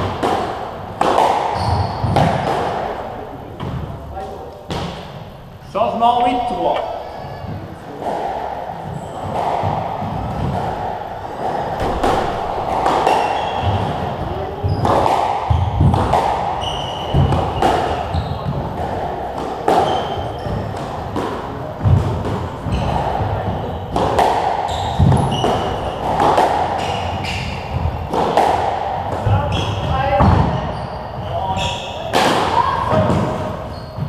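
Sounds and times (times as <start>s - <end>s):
squash ball hit by rackets: 0.0s - 3.0s, 8.0s - 30.7s, 32.1s - 34.0s
shoes squeaking on wooden floor: 1.5s - 2.5s, 13.0s - 18.8s, 19.8s - 20.8s, 22.6s - 28.2s, 29.2s - 32.1s, 33.2s - 34.0s.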